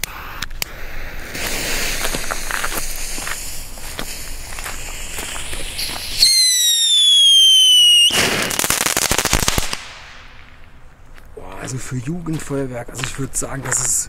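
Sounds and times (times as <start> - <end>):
firework hissing: 0.0 - 10.4
rapid firework crackling: 0.4 - 10.6
shrill firework whistle: 4.7 - 8.9.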